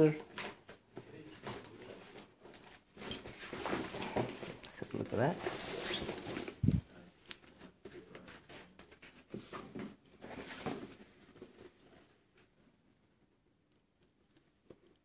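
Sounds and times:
nylon bag rustling: 3.0 - 7.0.

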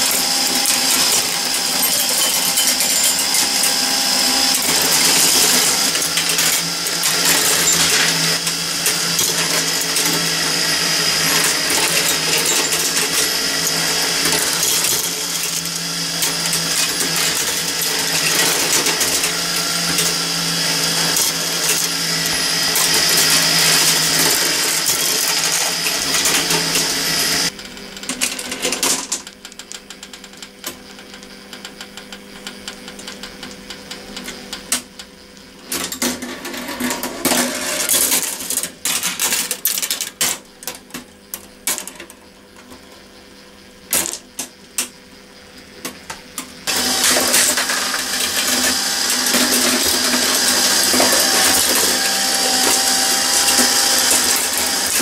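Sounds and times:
motor and gearing running: 0.0 - 28.2, 45.8 - 55.0
marbles clattering on metal: 0.0 - 30.4, 35.7 - 42.8, 43.9 - 44.9, 46.6 - 55.0.

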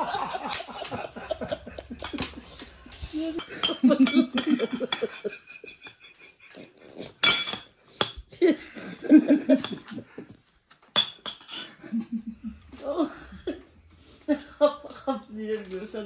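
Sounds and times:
people laughing: 0.0 - 6.9, 8.4 - 10.4, 11.8 - 15.3
cutlery clinking on china plates: 3.4 - 6.0, 7.2 - 8.3, 9.5 - 10.0, 11.0 - 11.7.

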